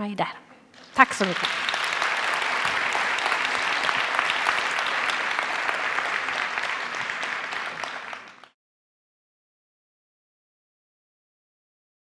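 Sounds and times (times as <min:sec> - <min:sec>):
audience applauding: 0:00.8 - 0:08.6.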